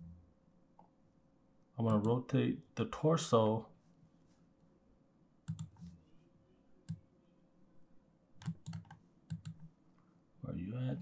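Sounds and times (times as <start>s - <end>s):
keyboard and mouse clicks: 5.4s - 5.9s, 8.4s - 9.7s.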